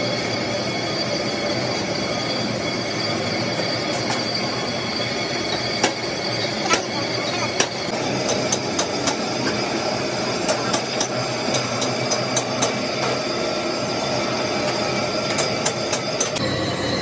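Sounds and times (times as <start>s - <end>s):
workshop machinery running: 0.0s - 17.0s.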